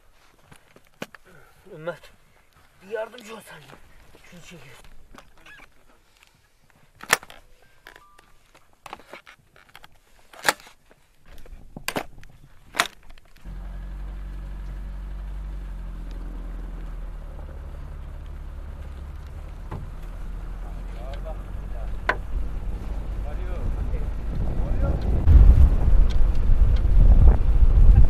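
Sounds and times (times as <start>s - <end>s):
car engine running: 13.5s - 28.0s.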